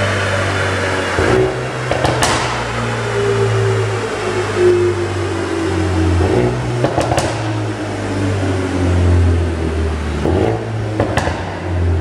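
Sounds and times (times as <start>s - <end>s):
exhaust cracks: 0.0s - 3.4s, 6.1s - 12.0s
car engine running: 0.0s - 12.0s.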